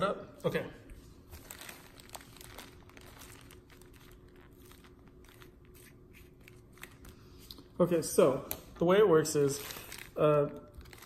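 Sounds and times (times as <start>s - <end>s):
plastic wrapper crinkling: 1.3s - 7.6s, 9.4s - 11.0s.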